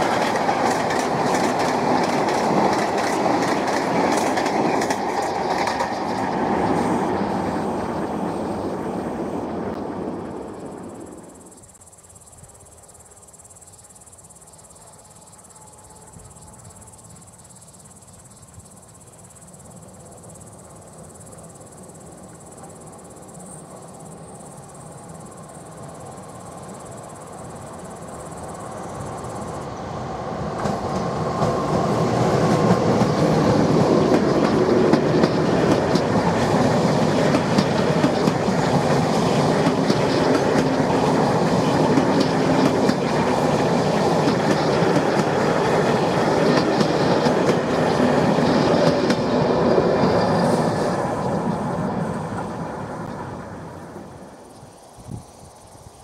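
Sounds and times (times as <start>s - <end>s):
train wheels clattering on rail joints: 0.0s - 7.0s, 30.4s - 52.6s
electric train passing: 0.0s - 56.0s.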